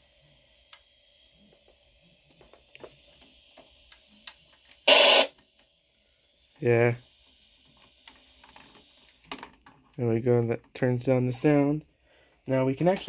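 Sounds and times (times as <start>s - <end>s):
television static hiss: 0.2s - 5.4s.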